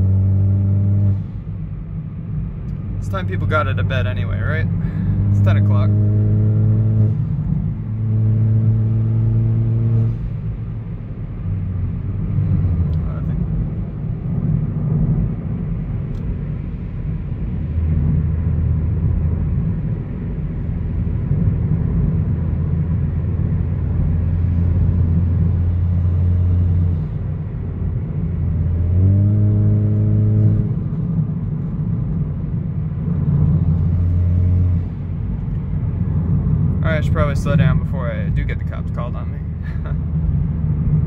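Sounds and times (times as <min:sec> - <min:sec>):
car exhaust rumble: 0:00.0 - 0:41.0.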